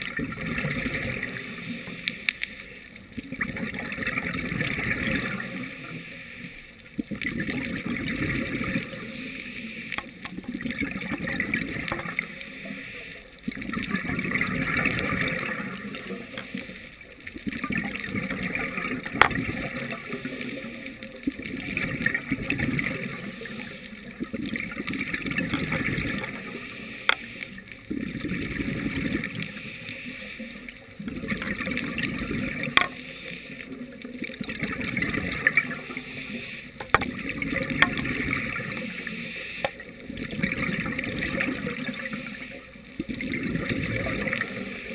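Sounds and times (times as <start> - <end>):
bubbling exhale underwater: 0.0 - 1.9, 3.2 - 6.0, 6.9 - 9.3, 10.0 - 12.8, 13.4 - 44.9
regulator hissing inhale: 5.7 - 6.7, 8.9 - 10.0, 12.2 - 13.4, 23.1 - 24.0, 26.4 - 27.7, 29.4 - 30.7, 33.0 - 33.8, 35.8 - 36.8, 38.7 - 39.8.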